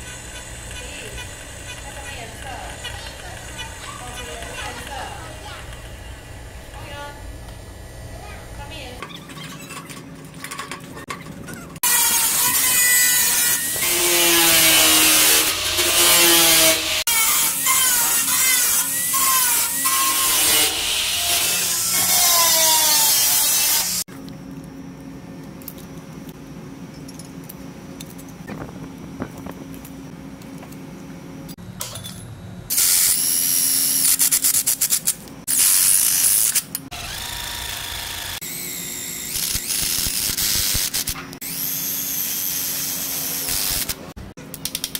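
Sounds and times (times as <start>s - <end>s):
steady low hum: 0.0s - 9.0s
angle grinder cutting metal: 11.8s - 24.0s, 35.5s - 44.0s.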